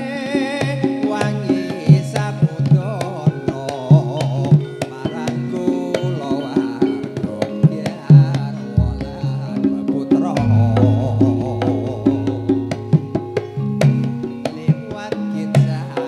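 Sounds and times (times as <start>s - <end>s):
person singing: 0.0s - 16.0s
deep low held note: 8.8s - 9.5s, 10.4s - 14.1s
ringing metallophone notes: 8.8s - 9.8s, 10.4s - 14.9s
drum strokes: 8.8s - 14.9s.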